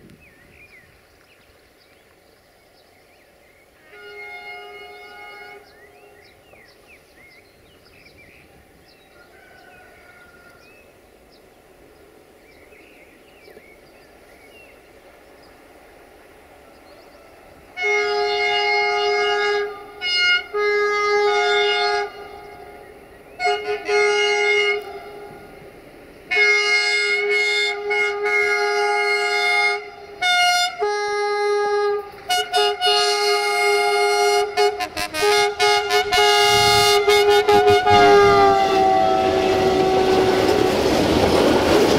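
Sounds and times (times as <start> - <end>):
train rumbling: 0.0 - 41.9
locomotive air horn blasts: 3.8 - 6.2, 17.7 - 25.7, 26.3 - 40.8.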